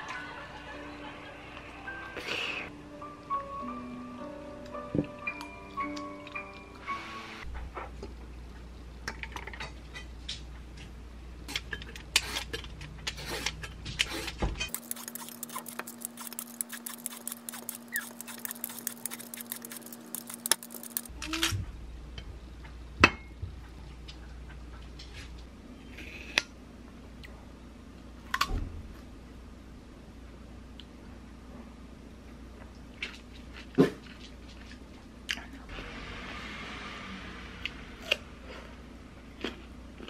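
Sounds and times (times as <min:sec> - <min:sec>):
peeler scraping melon rind: 0:12.2 - 0:21.1.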